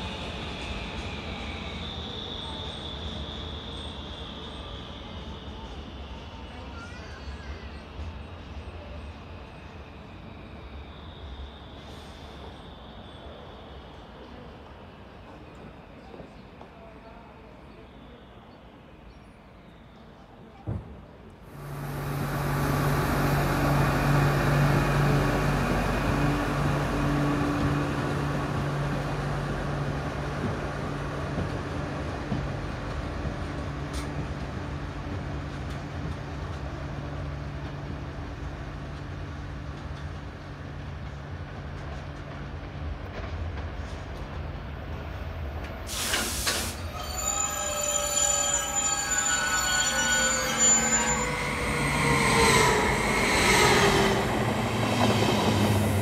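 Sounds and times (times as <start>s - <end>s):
wheels rumbling on rails: 21.5s - 45.9s, 50.4s - 56.0s
locomotive humming: 21.5s - 56.0s
sharp hiss of air: 45.8s - 46.9s.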